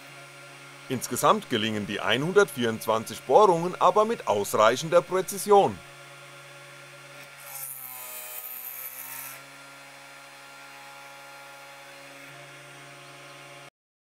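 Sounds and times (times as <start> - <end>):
spindle motor humming: 0.0 - 9.4
drill bit boring into circuit board: 7.2 - 9.4.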